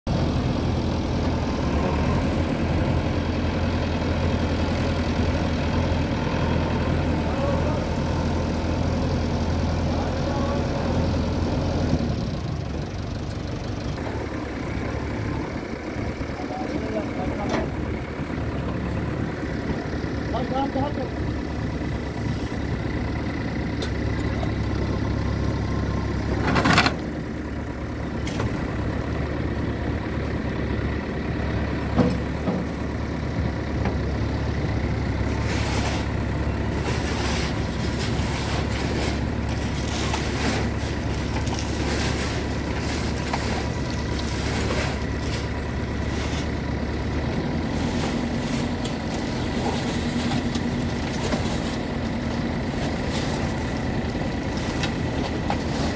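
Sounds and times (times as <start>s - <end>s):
diesel engine running: 0.0s - 55.9s
bucket scraping stones: 35.3s - 46.6s, 47.6s - 52.0s, 54.5s - 55.9s.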